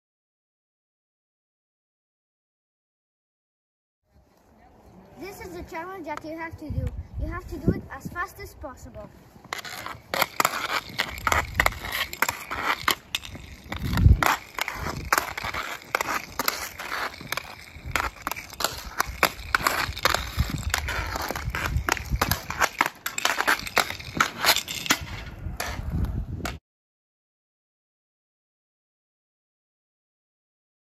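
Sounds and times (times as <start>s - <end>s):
stick scraping on asphalt: 5.3s - 26.6s
skate wheels rolling on pavement: 7.4s - 26.6s
hockey stick clacking on pucks: 9.5s - 25.8s.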